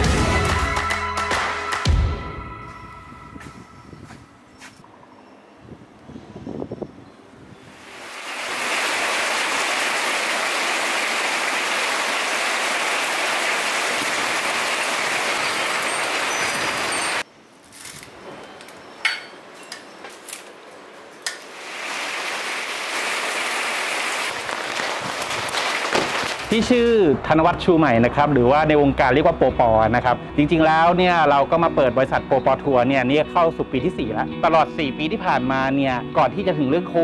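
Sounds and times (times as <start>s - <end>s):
heavy rain hissing: 7.6s - 17.2s, 21.4s - 26.5s.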